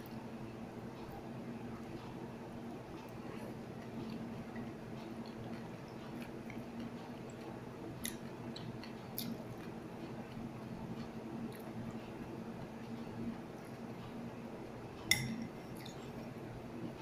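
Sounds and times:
person chewing noodles: 3.0 - 12.2.

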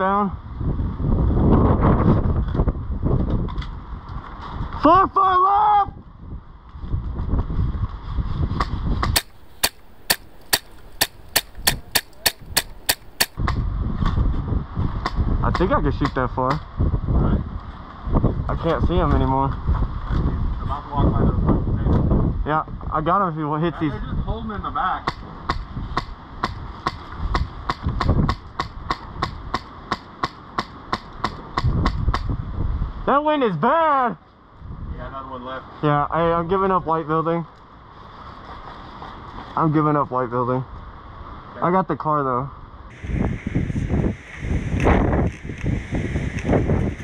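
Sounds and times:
wind rumble on microphone: 0.0 - 29.6, 31.2 - 33.4, 34.5 - 37.2, 42.5 - 47.0
airsoft gun shots snapping: 8.6 - 13.6.

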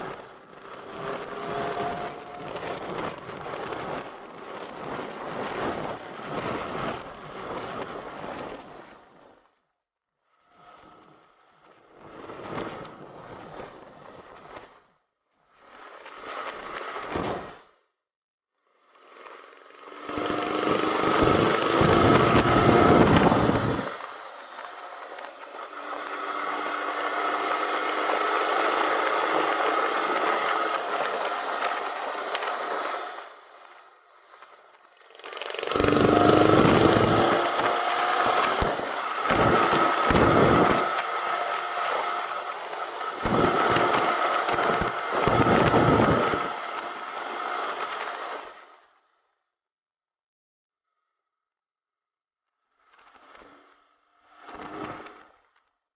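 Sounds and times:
motorcycle engine accelerating: 0.0 - 4.6, 19.5 - 33.2, 35.1 - 47.8
wind buffeting microphone: 20.6 - 24.2, 35.7 - 46.7.

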